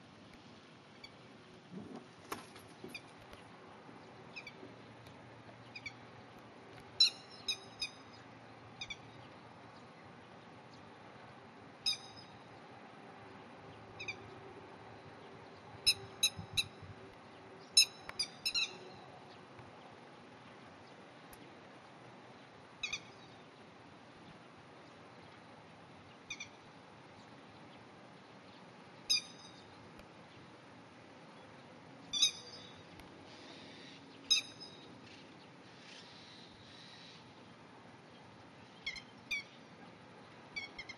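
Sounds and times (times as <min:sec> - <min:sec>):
lapwing alarm calls: 0:22.8 - 0:23.1, 0:32.1 - 0:32.7.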